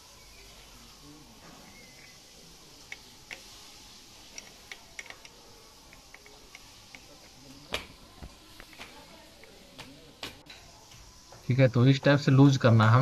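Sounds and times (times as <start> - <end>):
spanner clicking on metal: 4.2 - 7.1.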